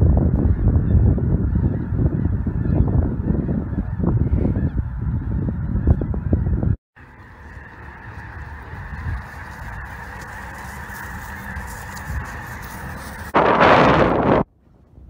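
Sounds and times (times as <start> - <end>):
geese honking: 1.4 - 13.4.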